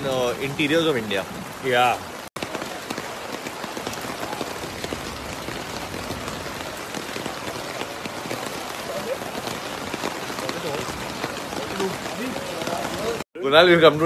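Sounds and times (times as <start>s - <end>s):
heavy rain falling: 0.0s - 14.0s.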